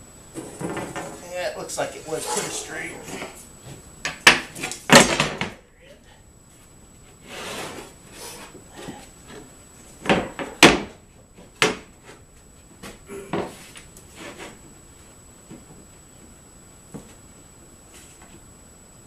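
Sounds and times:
metal square scraping on plywood: 2.1 - 3.4, 7.2 - 8.5.

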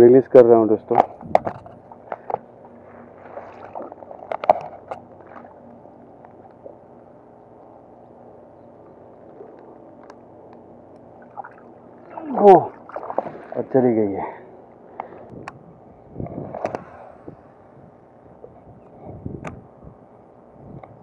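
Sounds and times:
water gurgling: 1.8 - 7.6, 11.0 - 14.5.

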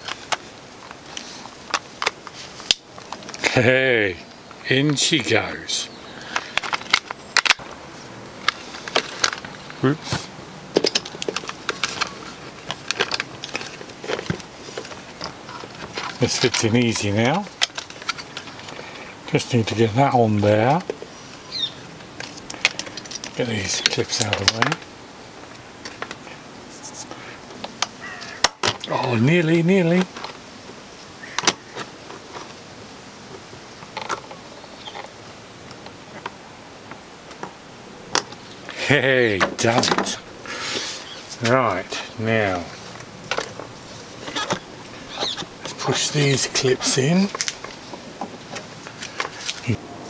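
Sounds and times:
faint steady hiss: 0.0 - 50.0
plastic parts clicking and knocking: 6.3 - 7.6, 10.7 - 16.6, 17.6 - 18.8, 33.8 - 35.1, 43.0 - 45.8.

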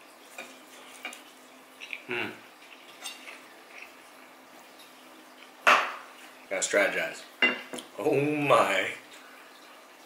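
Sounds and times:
man chewing food: 0.2 - 6.4.

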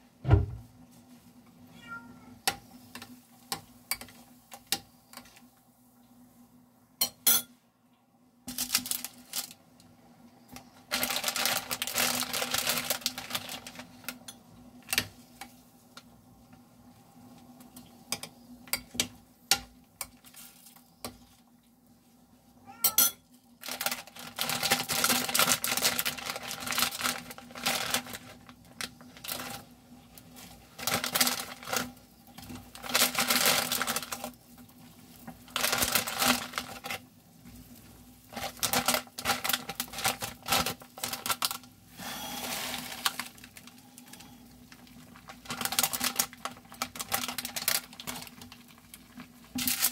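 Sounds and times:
plastic packet crinkling and tearing: 8.5 - 9.6, 10.9 - 14.2, 23.6 - 29.7, 30.5 - 34.4, 35.5 - 37.1, 38.3 - 41.7, 42.4 - 49.9.

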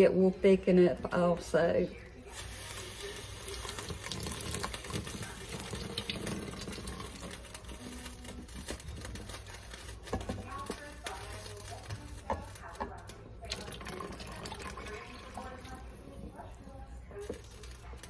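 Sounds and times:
water pouring into pot: 2.3 - 10.3, 13.4 - 18.0
wooden spoon stirring pot: 2.3 - 18.0.

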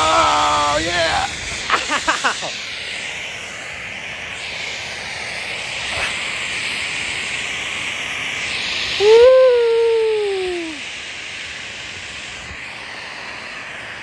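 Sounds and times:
man whooping: 0.0 - 2.5, 9.0 - 10.8.

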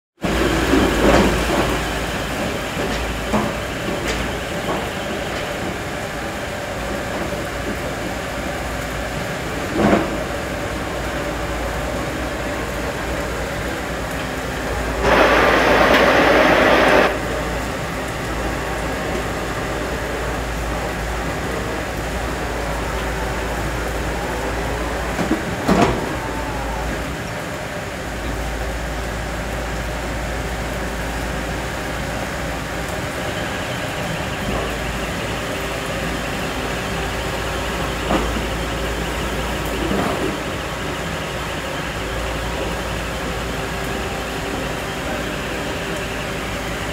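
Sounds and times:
drilling rig engine and hydraulics: 0.2 - 46.9
loud rushing noise: 14.5 - 18.0.

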